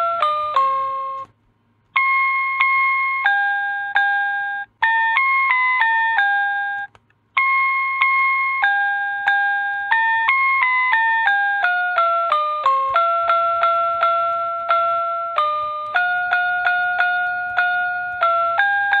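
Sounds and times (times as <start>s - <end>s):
plucked instrument melody: 0.0s - 1.3s, 2.0s - 19.0s.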